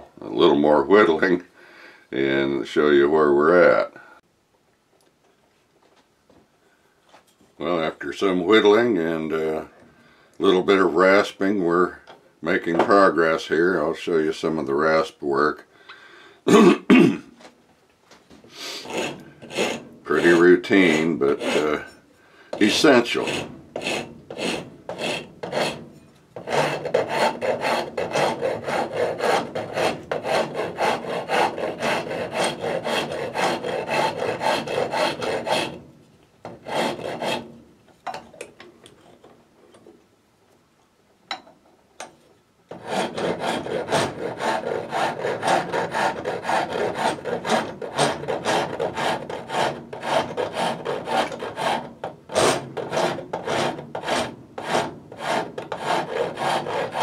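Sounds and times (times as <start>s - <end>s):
rasp scraping wood: 18.6s - 35.9s, 36.5s - 37.6s, 42.7s - 57.0s.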